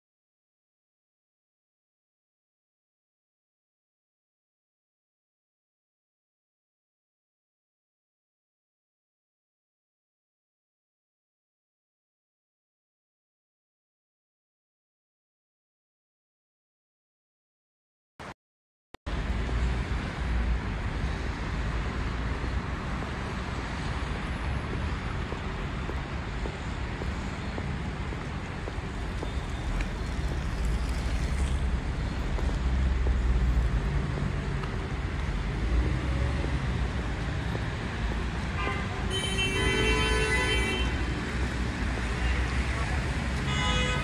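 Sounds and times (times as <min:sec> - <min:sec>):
passing cars rumbling: 0:19.1 - 0:44.0.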